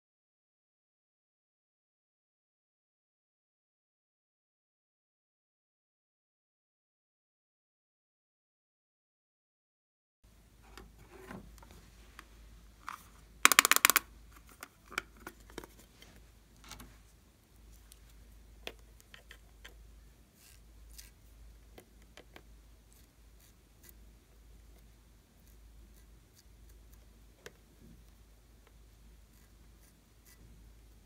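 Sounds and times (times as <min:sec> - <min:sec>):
plastic palette clicks: 0:12.9 - 0:14.0
applicator scratching powder: 0:20.4 - 0:21.3, 0:29.2 - 0:30.6.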